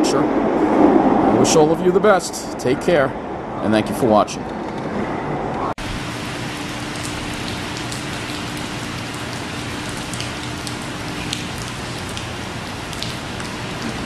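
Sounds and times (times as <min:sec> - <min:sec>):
heavy rain on pavement: 0:05.8 - 0:14.0
raindrops ticking: 0:05.9 - 0:14.0.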